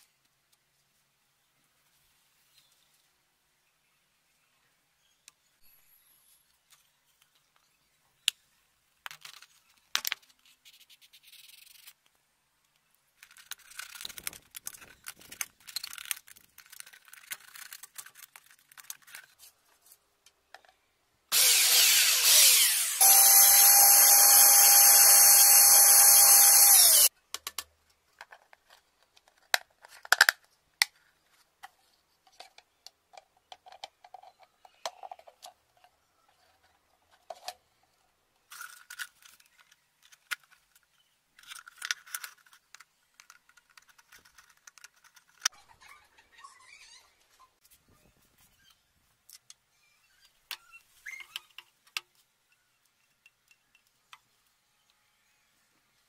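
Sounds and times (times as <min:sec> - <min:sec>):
plastic parts being handled: 0:09.0 - 0:20.8, 0:25.6 - 0:45.6
electric drill whining: 0:21.3 - 0:27.1.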